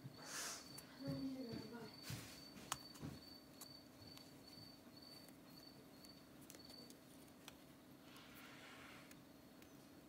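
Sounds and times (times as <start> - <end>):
insect chirping: 0.0 - 7.4.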